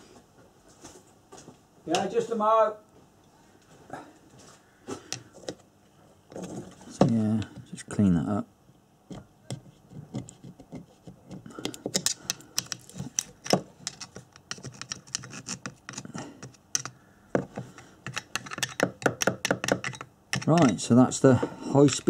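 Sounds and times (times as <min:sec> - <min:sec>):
screwdriver scraping metal core: 0:09.5 - 0:20.9.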